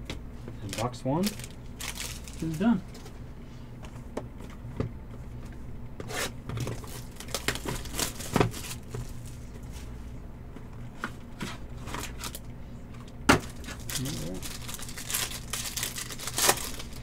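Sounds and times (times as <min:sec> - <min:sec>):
steady low hum: 0:00.0 - 0:17.0
packaging tearing and rustling: 0:00.7 - 0:02.8, 0:06.1 - 0:09.5, 0:11.8 - 0:12.4, 0:13.4 - 0:17.0.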